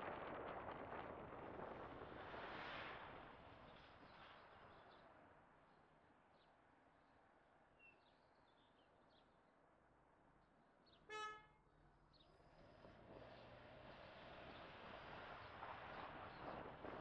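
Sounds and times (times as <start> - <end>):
car horn toot: 11.1 - 11.6.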